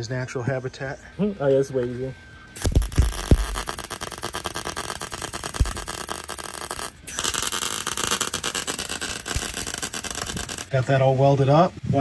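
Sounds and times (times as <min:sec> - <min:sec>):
welder arc crackling: 0:02.6 - 0:10.8.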